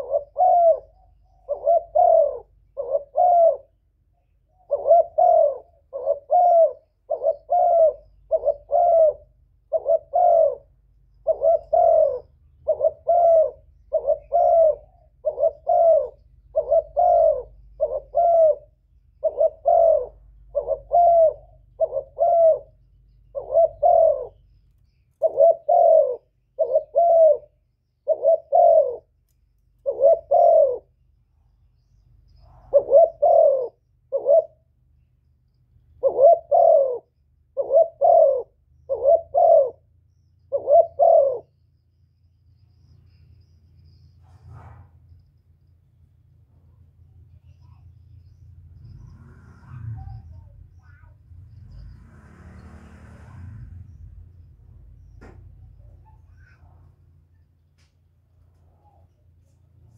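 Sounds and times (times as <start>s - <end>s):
dove cooing: 0.0s - 24.5s, 25.2s - 29.2s, 29.8s - 31.0s, 32.4s - 34.8s, 35.9s - 41.6s, 55.2s - 57.4s.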